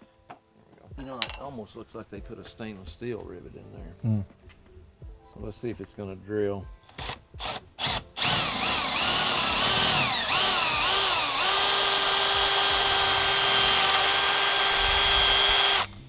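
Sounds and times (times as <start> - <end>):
cordless drill whining: 6.9 - 16.0.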